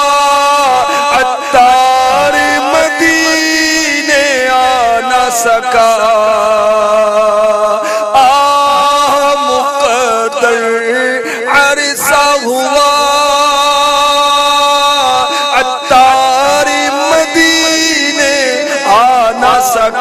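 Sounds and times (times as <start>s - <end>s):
man singing unaccompanied: 0.0s - 20.0s.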